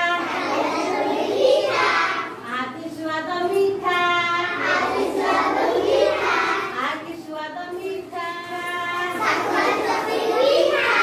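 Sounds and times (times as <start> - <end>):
children singing in unison: 0.0 - 2.4, 4.1 - 6.8, 9.0 - 11.0.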